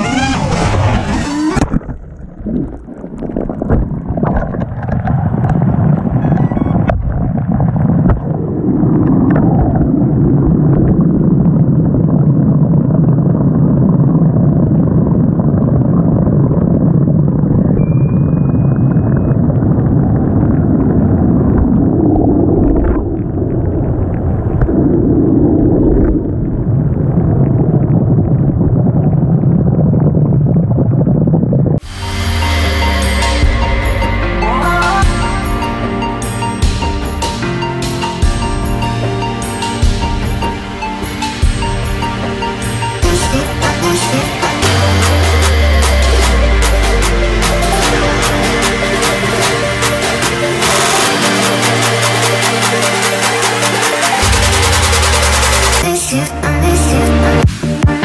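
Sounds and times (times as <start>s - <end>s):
muffled underwater rumble: 0.0s - 36.1s
water gurgling: 0.0s - 37.2s, 39.8s - 57.2s.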